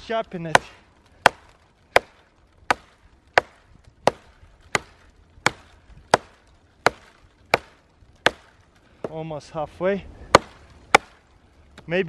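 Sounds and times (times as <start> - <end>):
axe chopping into a log: 0.5 - 9.2, 10.3 - 11.2.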